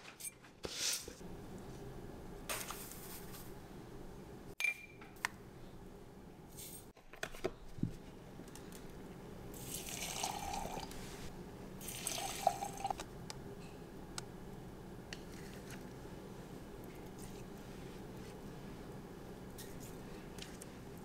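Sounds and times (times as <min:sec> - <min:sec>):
milk pouring into jars: 0:09.6 - 0:11.0, 0:11.8 - 0:13.0.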